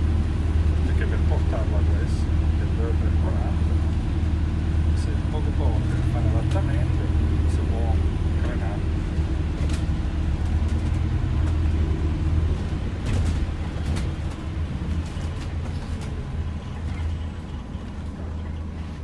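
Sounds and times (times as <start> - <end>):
bus drivetrain and road rumble: 0.0 - 19.0
light rattles: 8.3 - 18.3.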